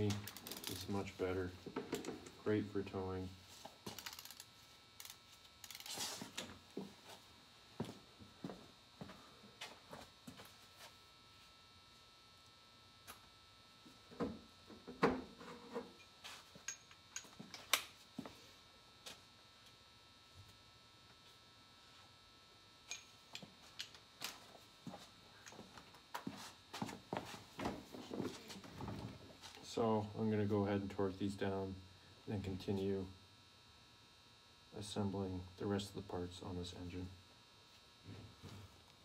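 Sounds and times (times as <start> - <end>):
faint electrical hum: 0.0 - 39.0
soft footsteps: 6.0 - 11.0, 23.4 - 29.5.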